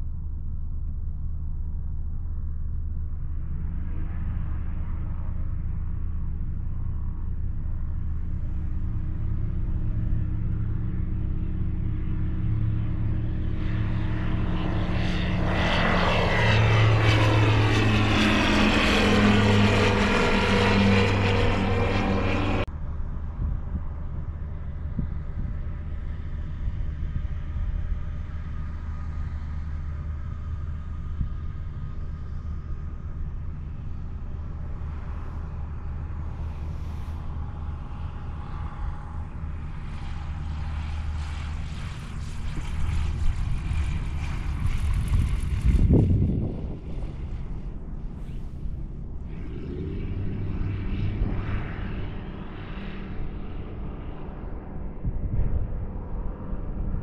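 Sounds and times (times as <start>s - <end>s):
faint steady drone: 0.0s - 57.0s
propeller airplane passing overhead: 0.0s - 57.0s.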